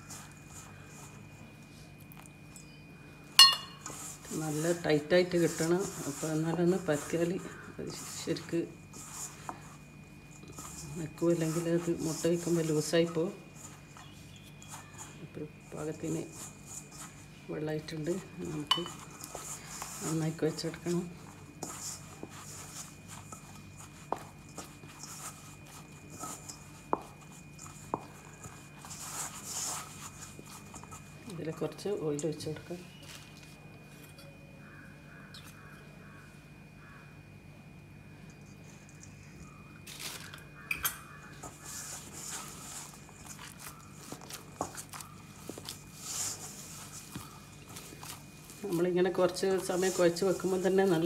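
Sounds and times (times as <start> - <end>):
dough rubbing and squashing: 0.0 - 2.6, 3.6 - 34.0, 38.6 - 51.0
steady low hum: 0.0 - 51.0
taps on metal bowl: 3.4 - 3.8.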